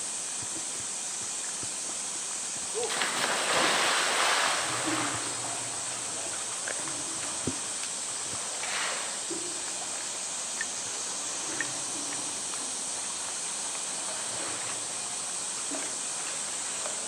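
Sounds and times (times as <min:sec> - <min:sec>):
steady high hiss: 0:00.0 - 0:17.0
water sloshing and lapping: 0:02.8 - 0:13.4.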